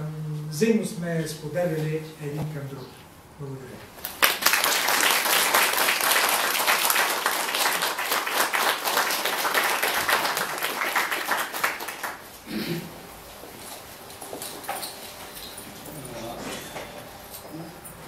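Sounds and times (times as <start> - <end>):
audience applauding: 4.0 - 12.4.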